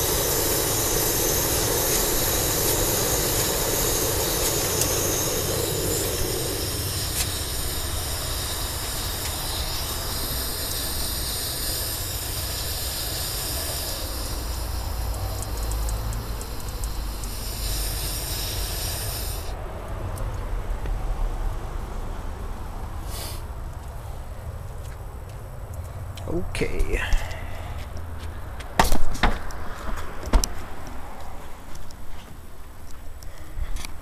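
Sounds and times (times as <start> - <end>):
gas stove burner hissing: 0.0 - 19.6, 23.0 - 23.6.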